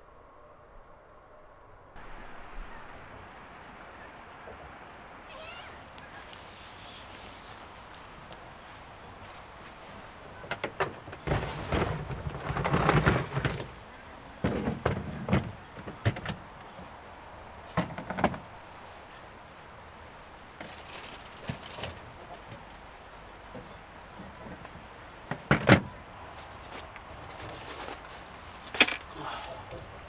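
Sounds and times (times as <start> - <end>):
plastic boxes knocking and scraping: 10.3 - 13.8, 14.4 - 16.5.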